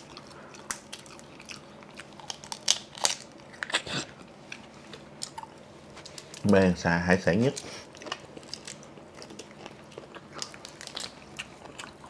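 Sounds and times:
crunchy bites: 0.0 - 4.1.

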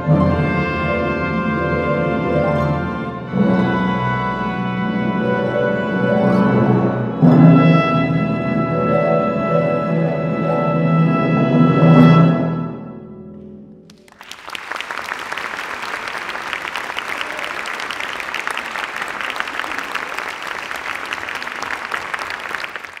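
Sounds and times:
audience applause: 13.9 - 23.0.

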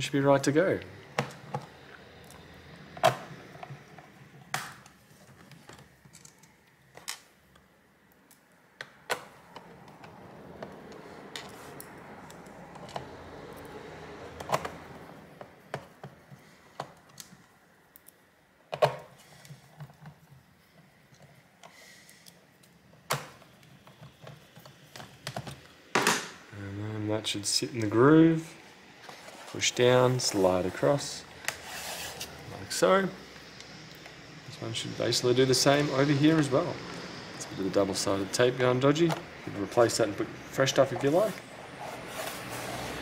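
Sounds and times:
faint scraping: 27.9 - 33.2.

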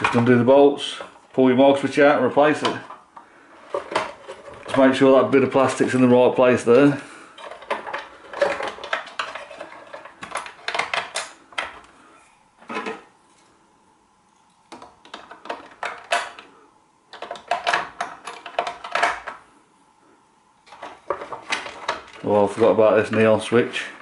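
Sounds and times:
plastic parts clicking and knocking: 2.6 - 4.9, 7.4 - 11.9, 14.7 - 16.5, 17.1 - 19.4, 20.6 - 23.3.

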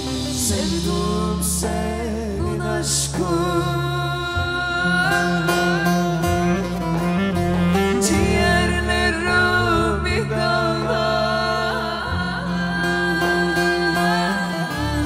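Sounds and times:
band playing folk music: 0.0 - 15.0
bass line: 0.0 - 15.0
person singing: 0.0 - 15.0
plucked lute: 0.0 - 15.0.

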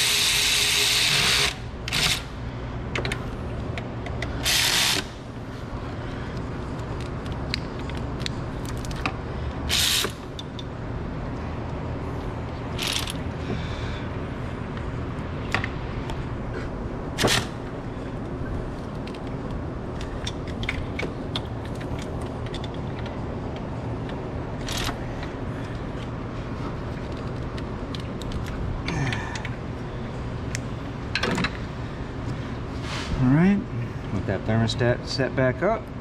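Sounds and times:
hand ratchet clicking: 12.8 - 13.2.

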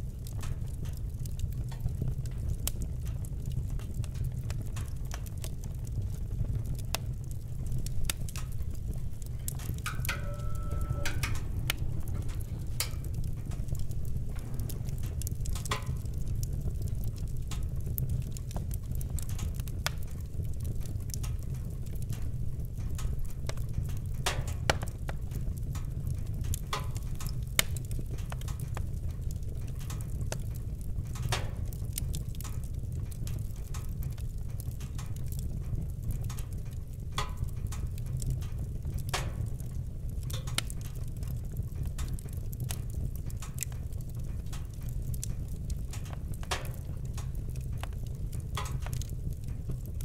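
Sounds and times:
fire pops and snaps: 0.0 - 50.0
wood fire crackling: 0.0 - 50.0.

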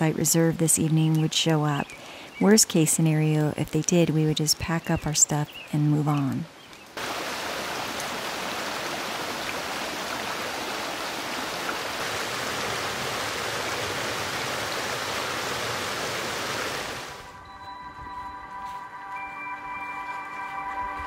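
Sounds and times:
creek running over rocks: 6.0 - 17.3.

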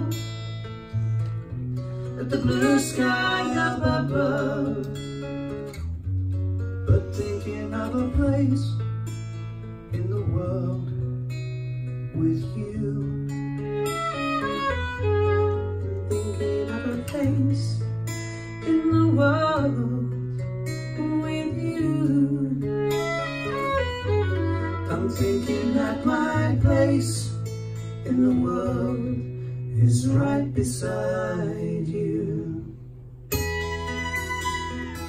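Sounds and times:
acoustic guitar strumming: 0.0 - 35.0
fiddle playing melody: 13.6 - 16.3, 22.6 - 26.6, 33.3 - 35.0.

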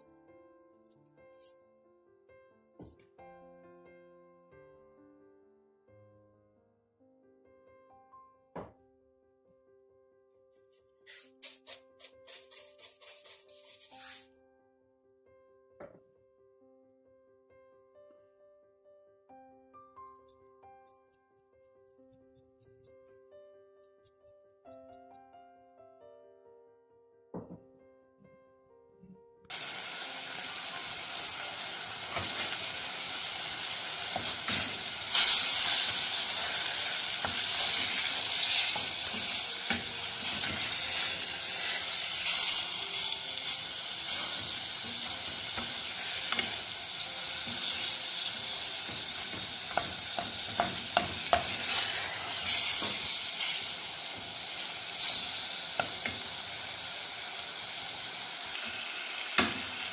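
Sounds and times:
chicken sizzling in oil: 29.5 - 59.9
wooden spoon knocking on pot: 48.8 - 51.6.

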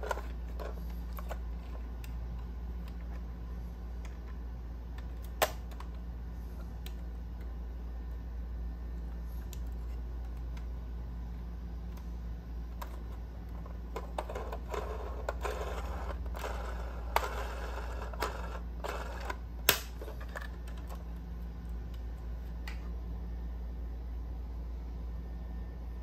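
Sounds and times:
model car clicking and rubbing: 13.6 - 19.4.

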